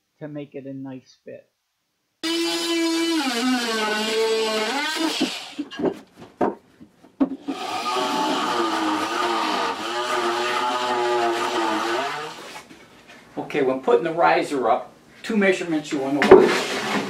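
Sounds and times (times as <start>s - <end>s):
oscillating multi-tool buzzing: 2.2s - 5.7s, 7.4s - 12.6s
knocks: 5.2s - 7.4s.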